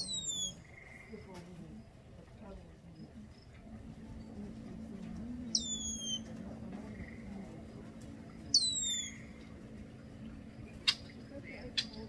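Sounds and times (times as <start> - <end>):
bird whistle call: 0.0 - 0.6, 5.5 - 6.3, 8.5 - 9.3.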